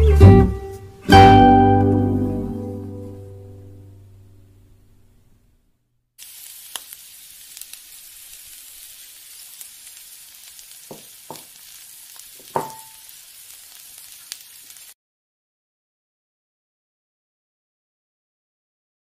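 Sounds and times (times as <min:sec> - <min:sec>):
dough deep-frying in oil: 0:06.2 - 0:15.0
wooden spatula knocking pan: 0:10.8 - 0:11.6, 0:12.4 - 0:13.0.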